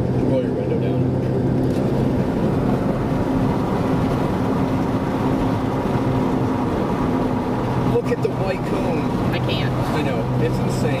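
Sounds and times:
car road and wind noise: 0.0 - 11.0
air rushing through car window: 1.0 - 8.0.

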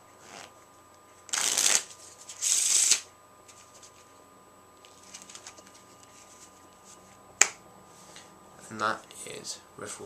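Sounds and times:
cards riffle shuffling: 1.3 - 4.1, 4.8 - 6.6.

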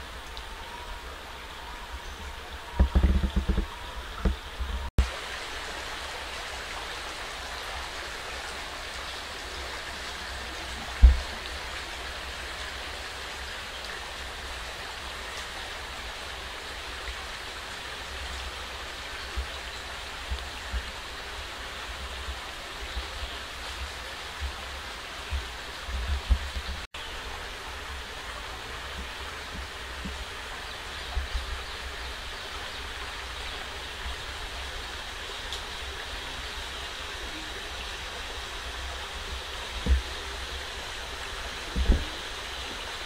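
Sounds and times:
stream rushing: 0.0 - 43.0
faint knocks: 2.8 - 4.9.

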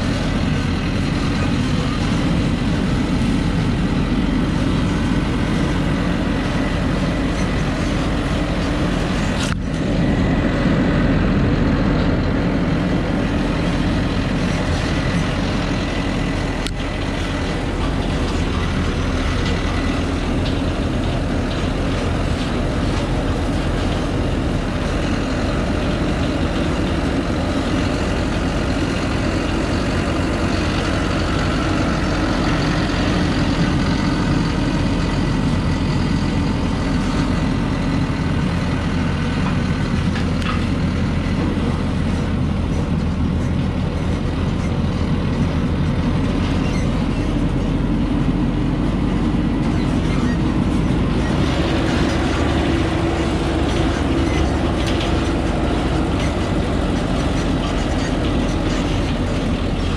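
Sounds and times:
truck engine running: 0.0 - 59.9
truck body rattling: 38.4 - 59.9.

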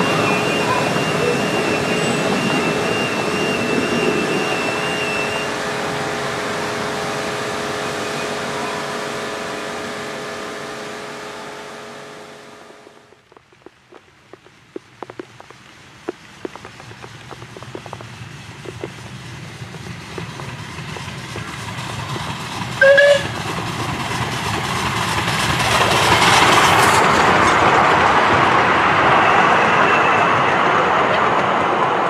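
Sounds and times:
steam engine and wagons running: 0.0 - 12.0, 12.6 - 32.0
wheels clicking over rail joints: 13.0 - 28.8
steam whistle toot: 22.8 - 23.4.

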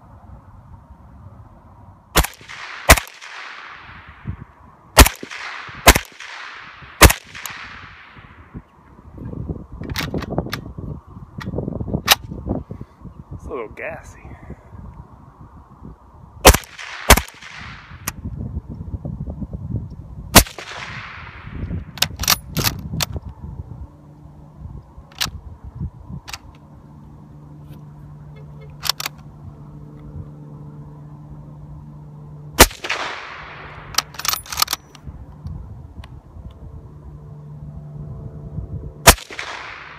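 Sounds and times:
suppressed rifle shots: 2.2 - 4.1, 5.0 - 8.2, 16.4 - 18.1, 20.4 - 22.4, 32.6 - 34.9, 39.0 - 39.9
sharp metallic clicks: 28.6 - 29.3, 32.6 - 36.6
rifle bolt clacking: 33.8 - 35.0.

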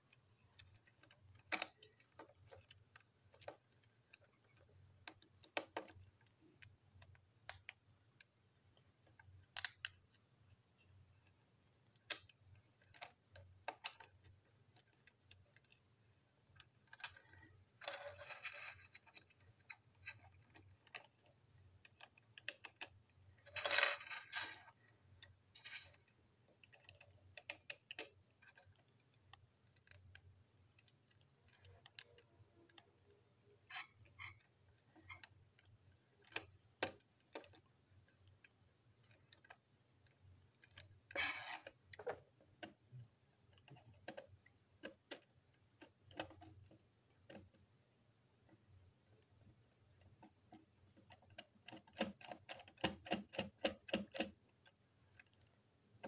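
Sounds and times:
light clicks and taps of toy parts: 0.1 - 47.7, 48.4 - 56.0
clattering plastic parts: 16.4 - 32.9.

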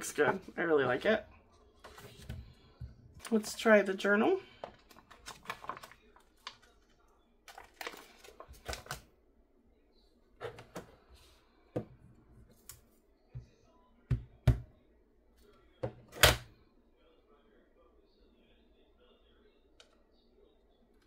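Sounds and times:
plastic sheet crinkling: 4.7 - 6.9, 7.5 - 9.0.

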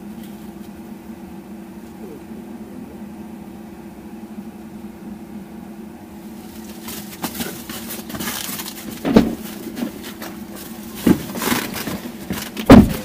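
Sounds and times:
climate system low hum: 0.0 - 13.0
rustling and hiss: 0.0 - 13.0
sharp heavy thumps: 8.8 - 13.0.

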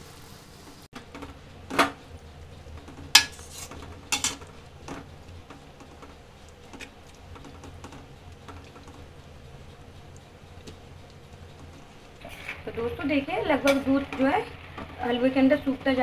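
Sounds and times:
metal spatula scraping a pan: 3.1 - 4.5, 12.2 - 12.8.

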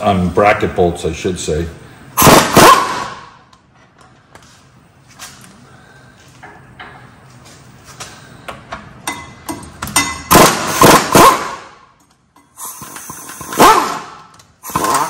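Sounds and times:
pneumatic impact wrench bursts: 2.2 - 3.3, 10.3 - 11.8, 12.5 - 15.0.

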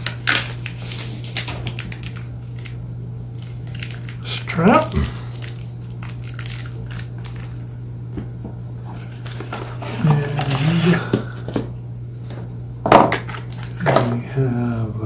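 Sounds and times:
packaging clicks and rustles: 0.0 - 2.8, 3.4 - 7.6
steady low hum: 0.0 - 15.0
murmured voice: 9.9 - 11.3, 14.0 - 15.0.

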